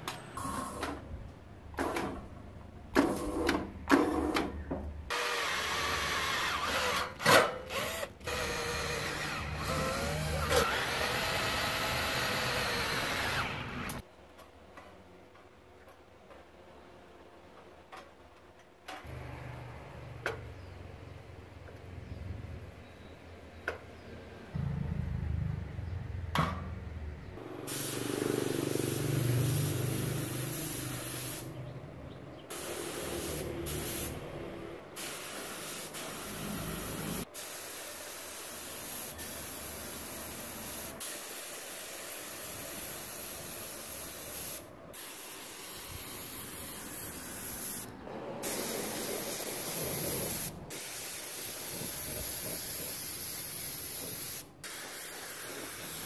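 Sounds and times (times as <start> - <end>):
paint spray gun hissing: 27.6 - 31.6, 32.5 - 34.2, 35.0 - 56.0.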